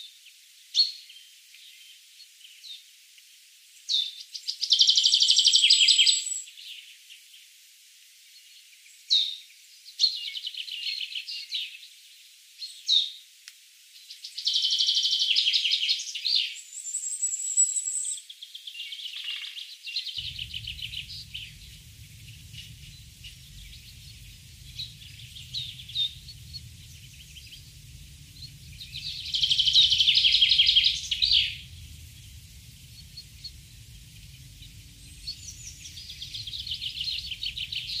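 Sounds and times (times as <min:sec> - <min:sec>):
bird chirping in rapid trills: 0:20.2 - 0:38.0
low steady rumble: 0:20.2 - 0:38.0.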